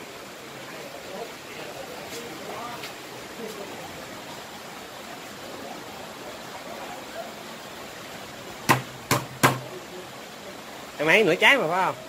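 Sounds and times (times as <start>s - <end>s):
rain hiss: 0.0s - 12.0s
knife knocking on cutting board: 8.7s - 9.6s.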